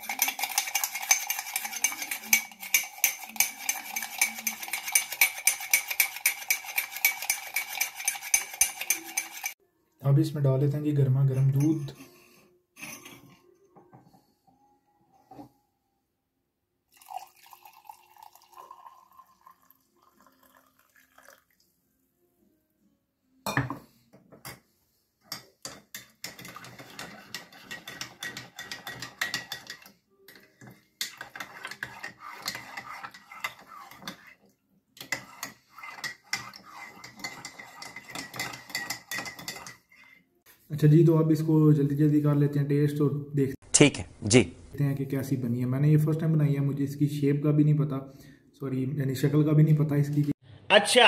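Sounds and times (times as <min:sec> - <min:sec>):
teaspoon clinking in mug: 0:00.0 - 0:09.6
milk pouring into mug: 0:16.9 - 0:21.8.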